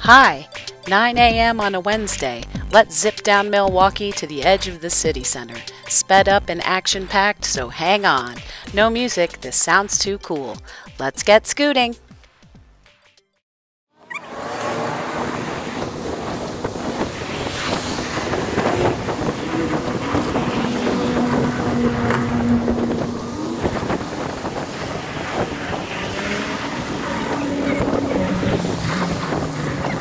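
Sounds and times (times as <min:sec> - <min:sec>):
car engines passing: 0:14.0 - 0:30.0
wind rushing over microphone: 0:14.6 - 0:30.0.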